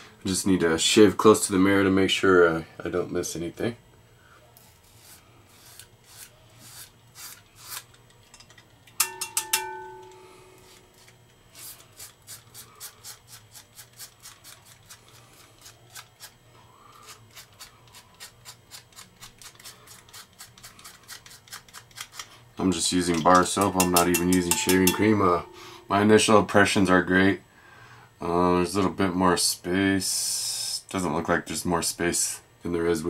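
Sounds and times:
razor scraping stubble: 4.6 - 8.1, 10.6 - 24.1
sharp ringing clinks: 9.0 - 10.4, 23.7 - 26.1.

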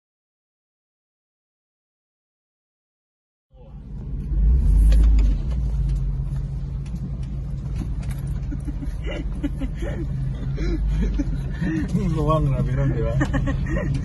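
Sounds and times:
vehicle engine and tyre rumble: 3.5 - 14.0.

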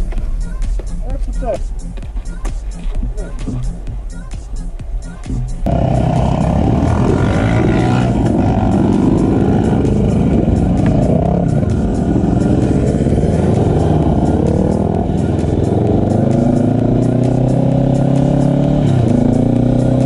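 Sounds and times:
quad engine accelerating: 5.6 - 20.0.

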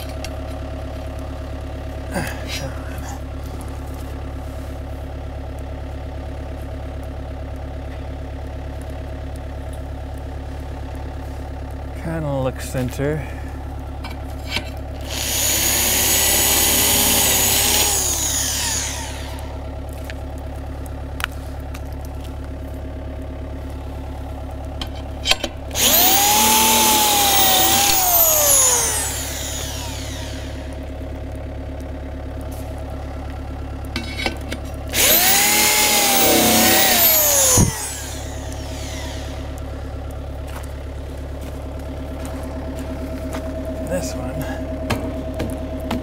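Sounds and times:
engine hum: 0.0 - 46.0
power drill whine: 15.0 - 19.6, 25.3 - 30.9, 34.9 - 39.6.

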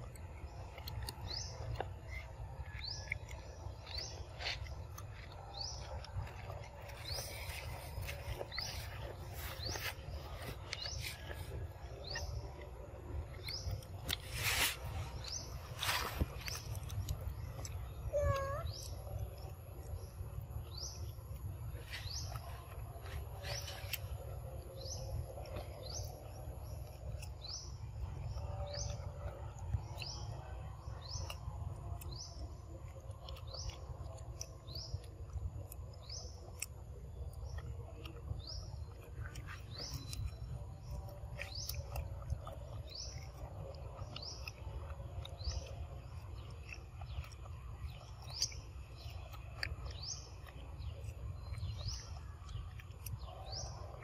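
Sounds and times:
bird chirping: 0.0 - 54.0
low background rumble: 0.0 - 54.0.

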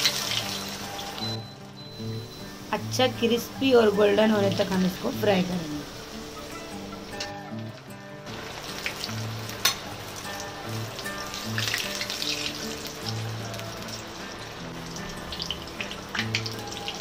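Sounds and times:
food deep-frying in oil: 0.0 - 17.0.

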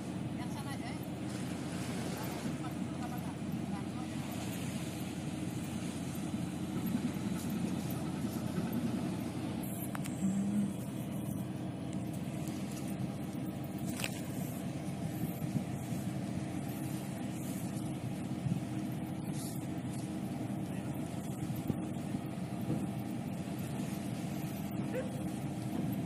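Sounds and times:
ship engine low rumble: 0.0 - 26.0
brief low hum: 5.6 - 26.0.

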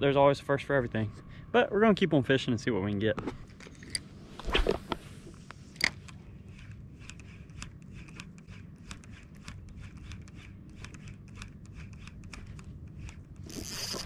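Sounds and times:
reel clicking as line cranked: 7.0 - 14.0.

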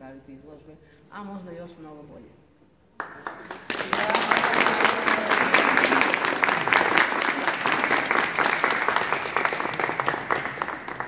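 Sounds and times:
audience applauding: 3.0 - 11.0.

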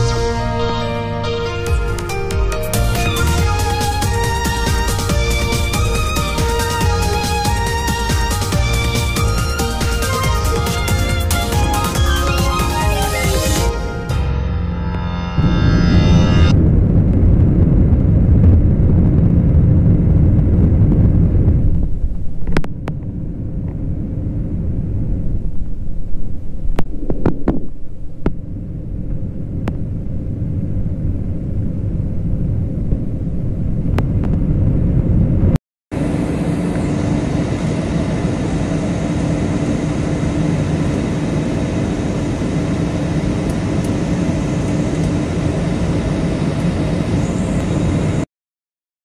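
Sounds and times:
jet engines and rushing air: 0.0 - 14.2, 14.9 - 48.3
faint hum: 14.9 - 48.3.

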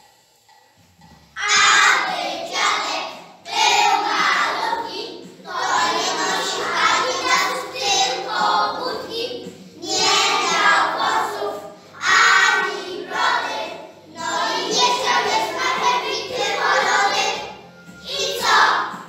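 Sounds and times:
children singing in unison: 1.4 - 19.0.

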